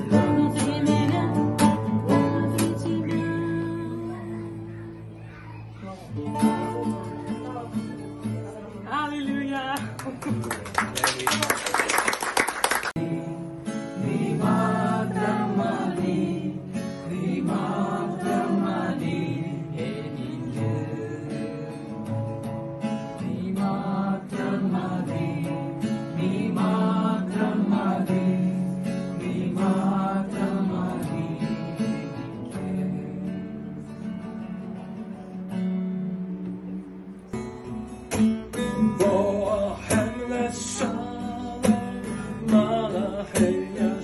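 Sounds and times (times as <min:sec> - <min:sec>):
strummed acoustic guitar: 0:00.0 - 0:10.9, 0:12.9 - 0:44.0
men singing: 0:13.0 - 0:22.5, 0:23.1 - 0:33.7, 0:38.6 - 0:44.0.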